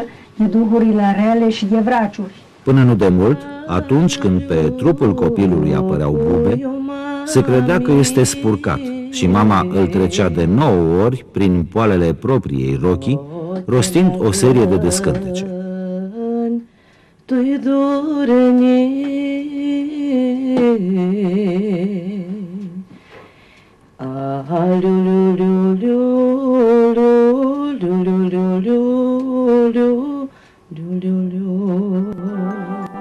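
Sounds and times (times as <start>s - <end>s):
woman chanting: 0.0s - 2.4s, 3.0s - 10.9s, 13.1s - 16.6s.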